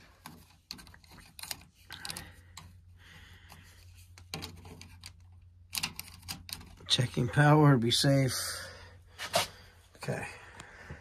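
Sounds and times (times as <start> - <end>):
light clicks and knocks of handling: 0.0 - 2.8, 3.4 - 7.2.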